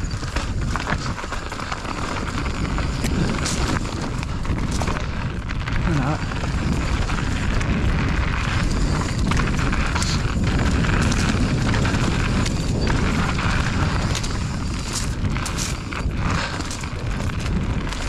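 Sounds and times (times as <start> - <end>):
bike rattling and clicking: 0.0 - 18.0
bike tyre noise: 0.0 - 18.0
wind rumble on microphone: 0.0 - 18.0.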